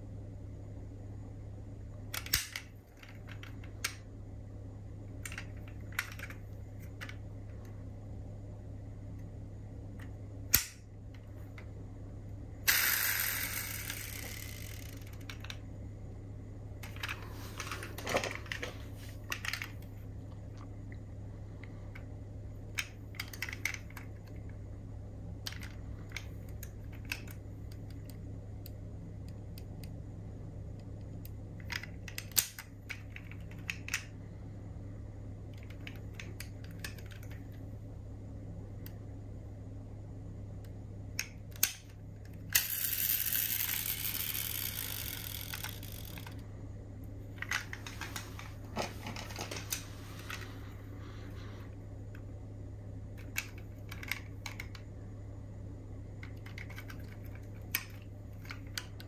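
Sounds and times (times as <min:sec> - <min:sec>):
steady low hum: 0:00.0 - 0:59.0
metal model cars clicking: 0:31.6 - 0:34.1.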